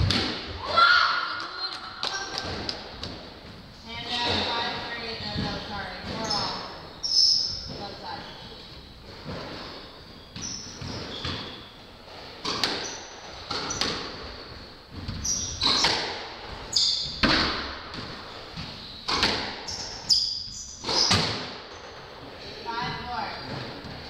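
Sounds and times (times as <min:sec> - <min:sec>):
squash ball hits echoing: 0:00.0 - 0:00.8, 0:12.4 - 0:19.9, 0:20.8 - 0:22.1
shoes squeaking on hardwood floor: 0:03.5 - 0:24.0.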